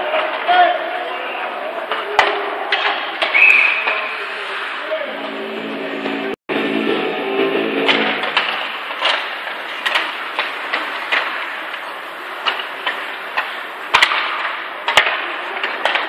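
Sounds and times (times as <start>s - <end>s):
hockey sticks clacking on puck: 0.0s - 1.0s, 1.8s - 4.2s, 7.9s - 16.0s
arena background noise: 0.0s - 16.0s
skates scraping on ice: 7.9s - 16.0s.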